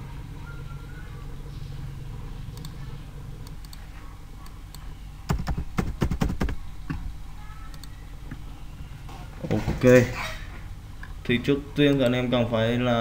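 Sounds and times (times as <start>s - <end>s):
faint steady hum: 0.0s - 13.0s
keyboard typing: 4.4s - 7.0s.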